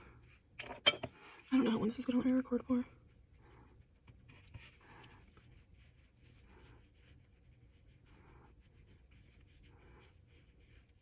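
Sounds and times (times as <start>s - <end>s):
makeup brush swishing on skin: 1.5s - 11.0s.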